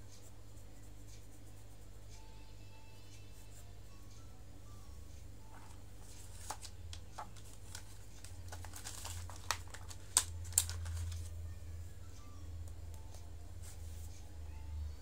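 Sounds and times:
steady low hum: 0.0s - 15.0s
pencils clicking and rattling in box: 5.5s - 11.3s.

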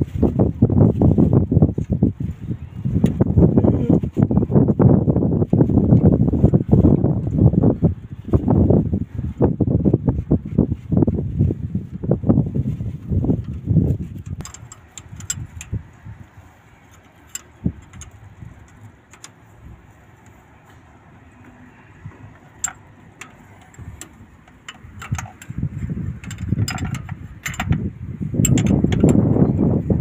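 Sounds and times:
wind buffeting microphone: 0.0s - 30.0s
metal tools tapping pipe fittings: 14.1s - 15.9s, 16.9s - 19.4s, 21.5s - 27.8s, 28.4s - 29.7s.

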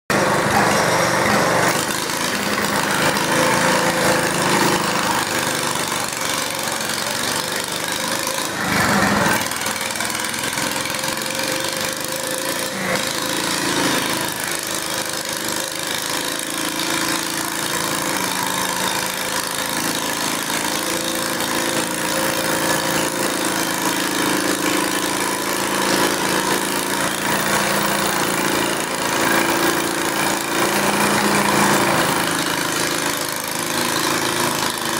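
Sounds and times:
garden tractor engine idling: 0.1s - 34.9s.

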